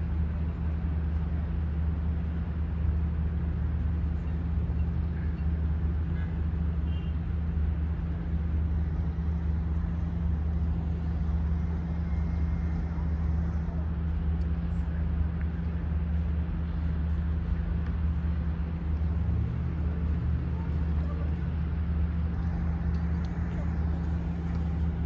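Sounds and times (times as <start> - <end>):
low mechanical drone: 0.0 - 25.0.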